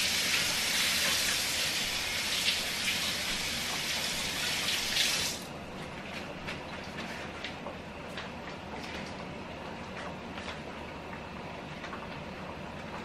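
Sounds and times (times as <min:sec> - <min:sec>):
kitchen tap running: 0:00.0 - 0:05.5.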